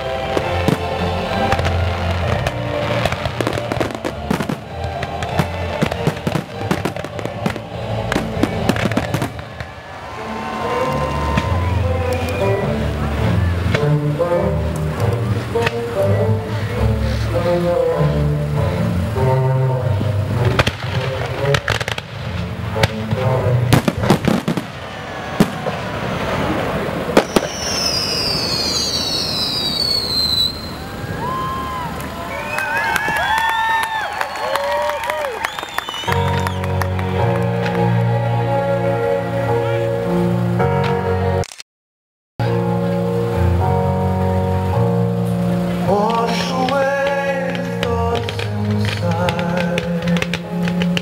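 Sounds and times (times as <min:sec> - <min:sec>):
fireworks bursting: 0:00.0 - 0:14.1, 0:20.0 - 0:38.0, 0:45.8 - 0:51.0
music playing: 0:00.0 - 0:24.8, 0:35.9 - 0:41.5, 0:42.4 - 0:51.0
high whistling tones gliding down: 0:27.2 - 0:33.5, 0:34.3 - 0:36.8.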